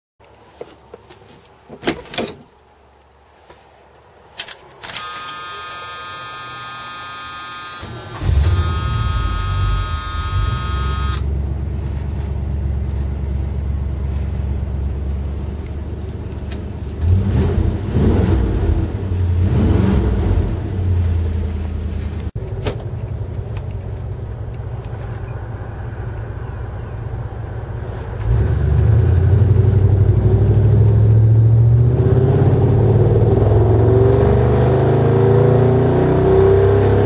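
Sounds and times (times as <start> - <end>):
engine cranking: 4.4 - 11.3
high buzzing tone: 4.9 - 11.3
engine revving: 5.0 - 11.3, 16.9 - 21.7, 28.2 - 37.0.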